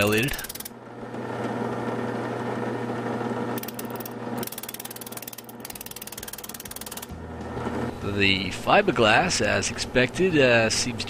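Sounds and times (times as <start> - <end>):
wire brush scratching rattle: 0.0 - 0.7, 3.6 - 7.1
drill press motor hum: 0.0 - 8.0.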